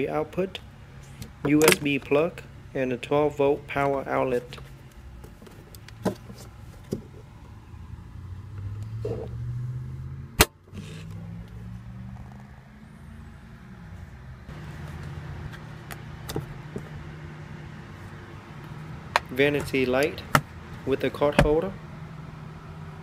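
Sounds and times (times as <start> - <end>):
car cabin hum: 13.9 - 23.0.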